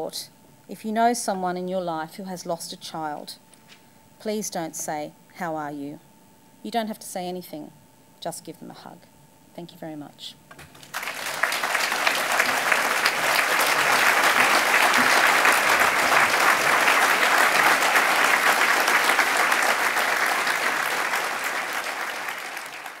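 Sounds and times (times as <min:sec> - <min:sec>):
audience clapping: 0:10.5 - 0:23.0.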